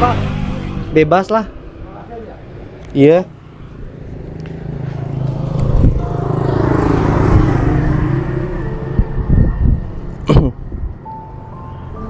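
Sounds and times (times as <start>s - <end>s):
vehicle passing close by: 3.5s - 12.0s.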